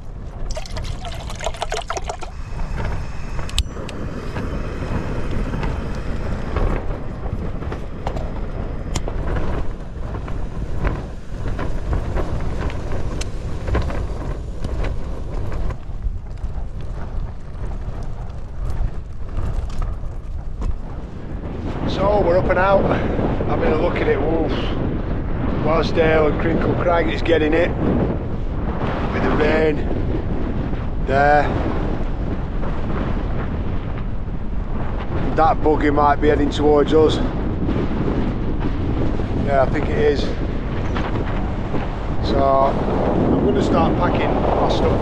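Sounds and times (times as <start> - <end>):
wind buffeting tent: 0.0 - 45.0
water pouring into metal pot: 0.5 - 2.7.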